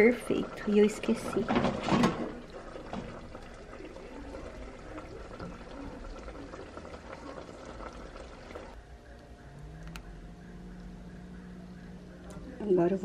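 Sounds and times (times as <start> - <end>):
broth pouring: 0.0 - 8.8.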